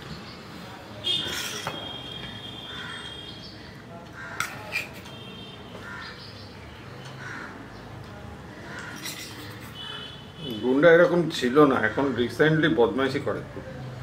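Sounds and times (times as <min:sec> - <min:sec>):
crows cawing: 0:02.6 - 0:04.6, 0:05.8 - 0:06.3, 0:07.1 - 0:07.7, 0:08.5 - 0:10.2.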